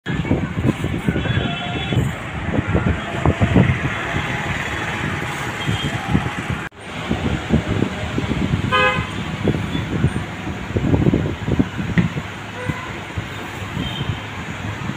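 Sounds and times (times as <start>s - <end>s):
street traffic: 0.0s - 14.9s
vehicle horn toot: 1.1s - 2.1s, 5.6s - 6.1s, 8.7s - 9.2s.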